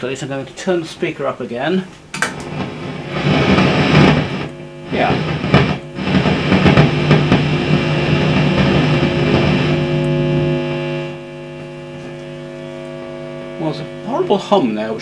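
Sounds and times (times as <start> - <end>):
amplifier hum: 0.0 - 15.0
guitar amp roaring: 2.2 - 15.0.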